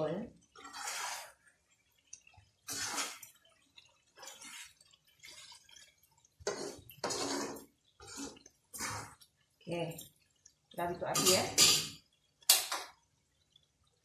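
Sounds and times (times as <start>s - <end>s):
fork stirring thick gravy in wok: 0.5s - 9.3s.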